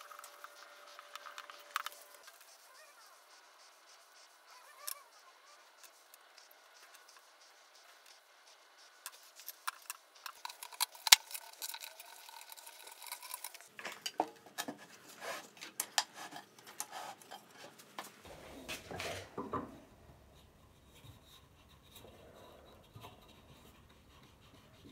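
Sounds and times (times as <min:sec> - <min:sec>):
wood knocking on wood: 0:19.3 - 0:19.8.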